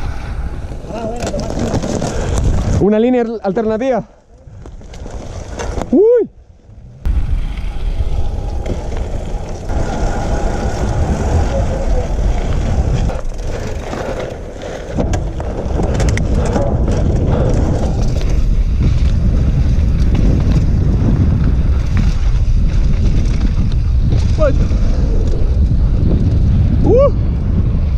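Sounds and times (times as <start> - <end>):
tyre noise on dirt: 0.0 - 3.4, 4.4 - 27.9
wind buffeting microphone: 0.0 - 3.8, 4.4 - 27.9
bike clicks and rattles: 0.9 - 3.1, 4.2 - 5.9, 10.8 - 26.8.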